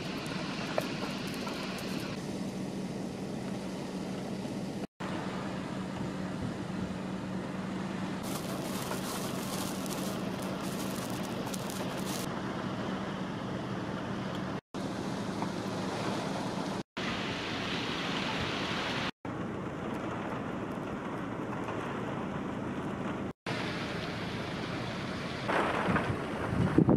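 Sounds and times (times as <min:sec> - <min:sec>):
crackly noise: 0:00.0 - 0:02.2, 0:08.2 - 0:12.3
rain on wet pavement: 0:00.0 - 0:02.2, 0:08.2 - 0:12.3, 0:19.8 - 0:26.7
wind: 0:00.0 - 0:26.9.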